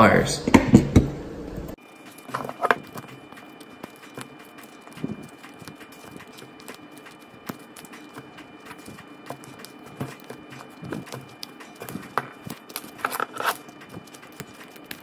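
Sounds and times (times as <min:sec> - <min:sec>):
gloves rustling: 0:01.8 - 0:15.0.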